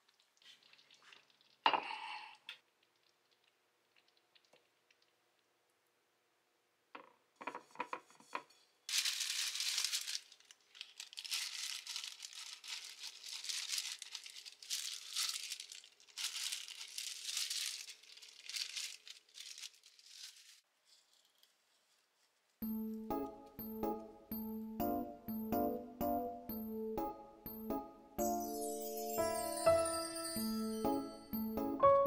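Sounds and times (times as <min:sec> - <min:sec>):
crinkling and rustling: 0:00.0 - 0:01.6, 0:07.0 - 0:22.6.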